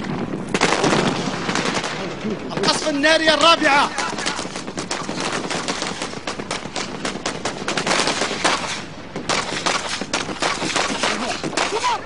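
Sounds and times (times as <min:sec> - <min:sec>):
machine-gun and rifle fire: 0:00.0 - 0:12.0.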